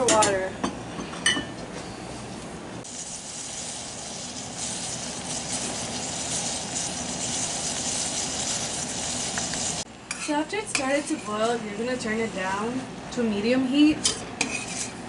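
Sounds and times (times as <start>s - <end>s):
water boiling with bubbling hiss: 2.8s - 9.9s.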